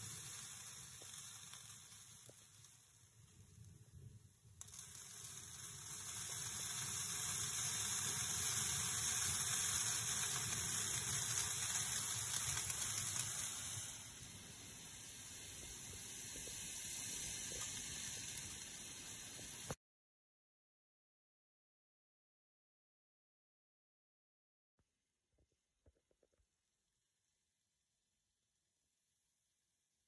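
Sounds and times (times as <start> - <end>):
steam hissing: 0.0 - 19.8.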